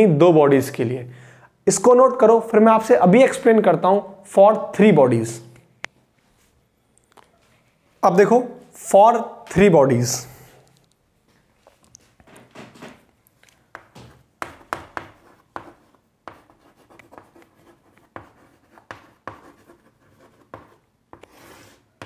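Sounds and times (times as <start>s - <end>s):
chalk writing on chalkboard: 13.7s - 22.0s.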